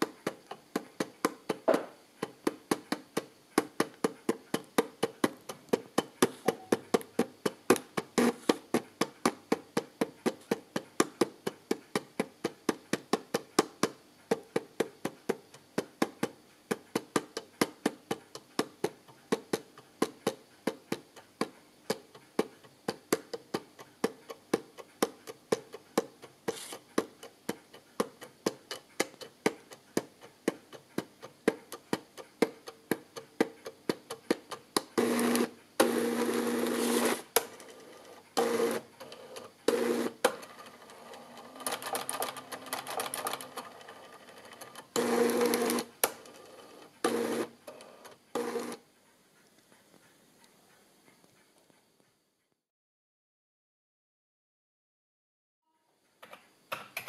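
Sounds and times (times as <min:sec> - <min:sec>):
pen plotter ticking: 0:00.0 - 0:50.1.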